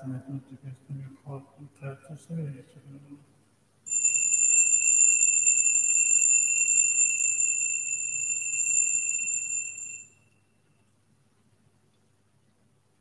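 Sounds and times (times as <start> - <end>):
altar bells jingling: 3.9 - 10.4.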